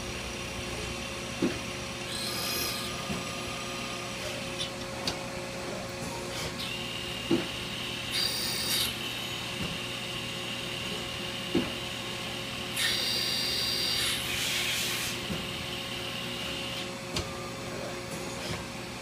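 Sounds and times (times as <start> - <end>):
spindle whine and hum: 0.0 - 14.3.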